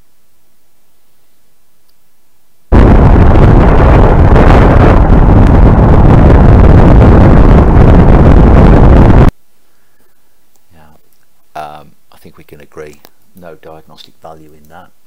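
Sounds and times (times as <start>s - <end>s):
wind buffeting: 2.7s - 9.3s.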